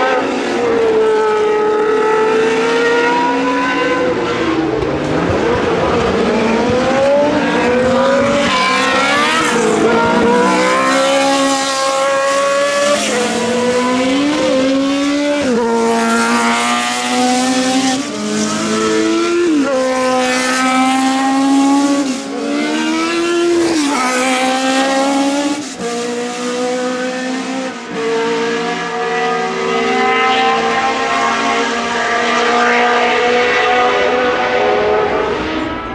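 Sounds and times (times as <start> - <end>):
racing car engines at full throttle: 0.0 - 35.9.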